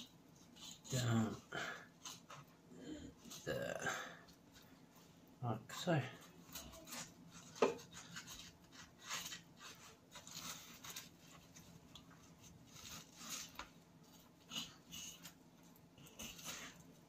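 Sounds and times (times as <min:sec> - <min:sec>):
knife scraping through fish: 0:06.4 - 0:17.0.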